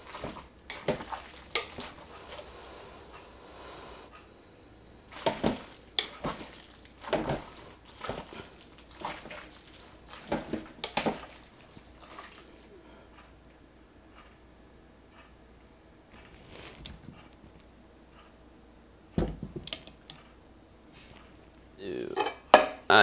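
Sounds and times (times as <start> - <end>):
wet squelching of meat: 0.0 - 2.6, 5.1 - 13.2.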